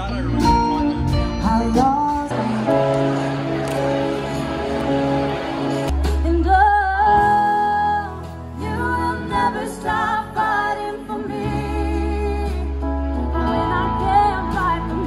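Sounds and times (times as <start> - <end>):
drums: 0.0 - 15.0
keyboard: 0.0 - 15.0
woman singing: 6.2 - 15.0.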